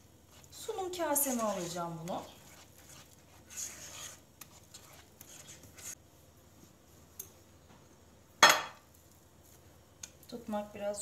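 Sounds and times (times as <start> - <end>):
whisk scraping a pot: 0.0 - 6.0.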